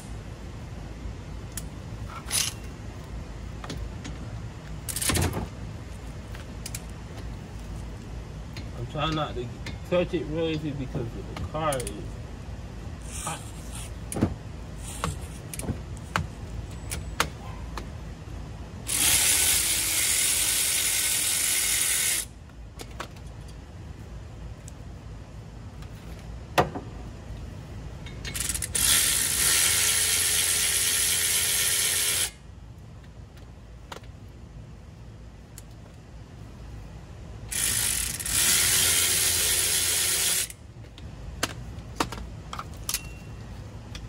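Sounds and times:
cordless impact wrench running: 18.8s - 22.3s, 28.4s - 32.4s, 37.5s - 40.6s.

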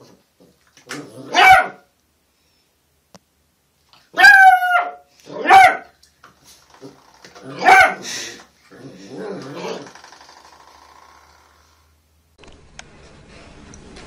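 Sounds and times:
puppy barking: 1.3s - 1.9s, 4.1s - 6.0s, 7.5s - 8.1s.

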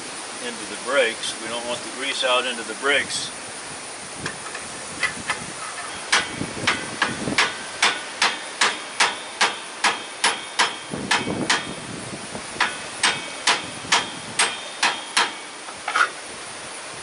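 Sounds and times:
hammer striking metal socket: 5.8s - 11.7s, 12.6s - 16.1s.

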